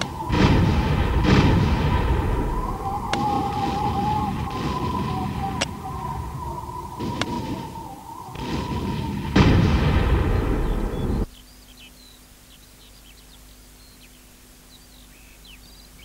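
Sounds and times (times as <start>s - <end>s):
explosion blast and rumble: 0.0s - 11.3s
faint bird chirps: 0.0s - 16.0s
low steady hum: 0.0s - 16.0s.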